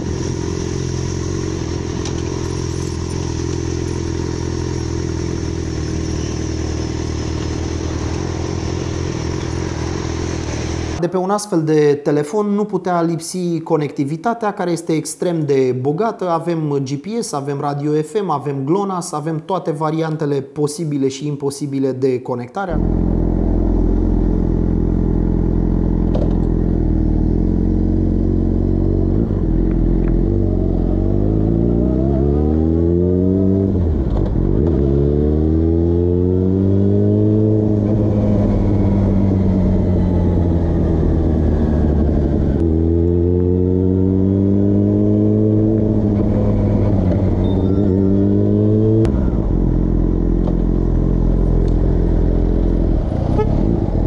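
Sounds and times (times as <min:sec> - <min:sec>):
motorcycle engine revving: 0:00.0 - 0:11.0, 0:22.7 - 0:54.0.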